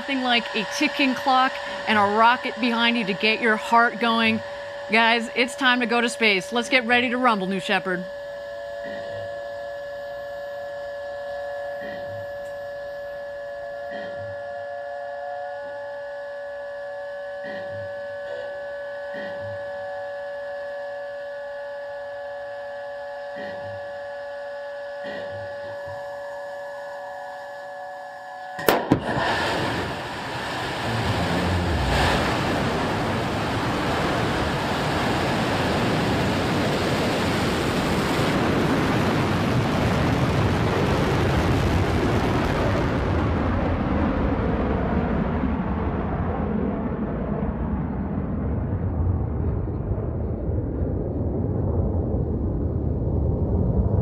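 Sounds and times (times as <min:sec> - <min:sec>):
rocket engine roar: 0:00.0 - 0:08.1, 0:28.6 - 0:54.0
electrical hum: 0:00.0 - 0:54.0
sharp bang: 0:28.6 - 0:33.0.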